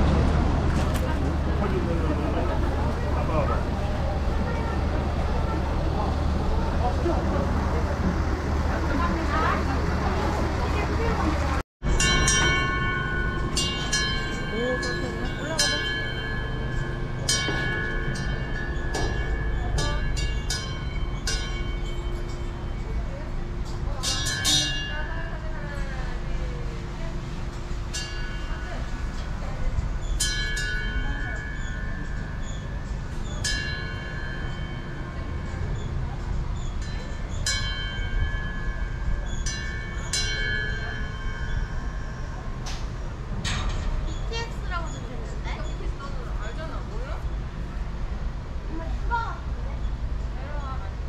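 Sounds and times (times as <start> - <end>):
brass bell ringing: 11.8 - 23.1.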